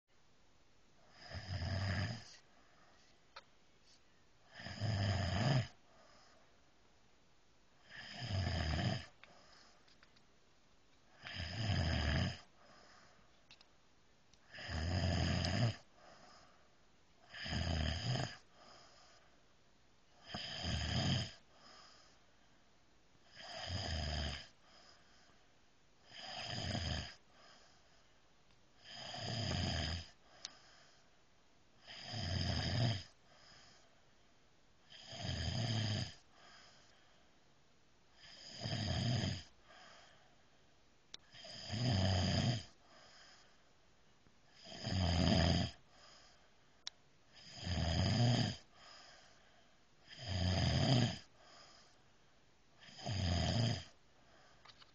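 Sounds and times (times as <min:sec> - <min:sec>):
quiet breathing: 0:00.1 - 0:45.0, 0:45.6 - 0:54.9
man snoring: 0:01.1 - 0:02.4, 0:04.4 - 0:06.3, 0:07.8 - 0:09.6, 0:11.1 - 0:12.9, 0:14.5 - 0:16.2, 0:17.2 - 0:19.2, 0:20.2 - 0:22.1, 0:23.2 - 0:24.9, 0:26.0 - 0:27.6, 0:28.8 - 0:30.6, 0:31.8 - 0:33.8, 0:34.9 - 0:36.9, 0:38.2 - 0:40.0, 0:41.3 - 0:43.4, 0:44.5 - 0:46.4, 0:47.3 - 0:49.2, 0:50.0 - 0:51.9, 0:52.8 - 0:54.0.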